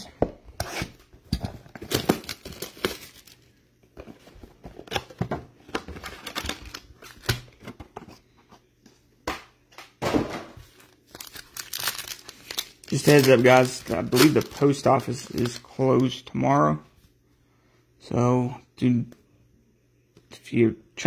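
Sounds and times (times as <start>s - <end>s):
foil wrapper crinkling: 1.9s - 3.4s, 10.8s - 16.2s.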